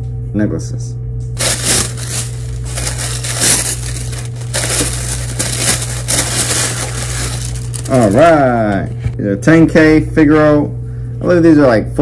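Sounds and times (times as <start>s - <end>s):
steady low hum: 0.0s - 12.0s
packaging wrapper crinkling: 1.4s - 9.0s.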